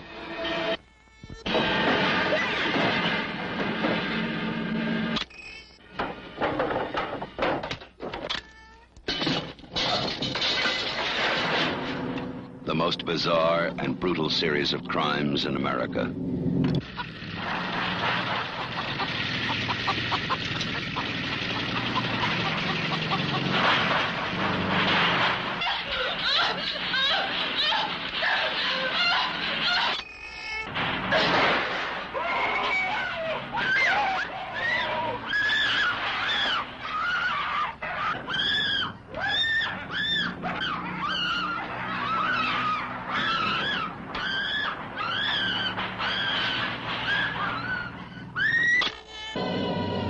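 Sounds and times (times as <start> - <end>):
steady low hum: 12.0 - 21.1
woman screaming: 25.6 - 30.0.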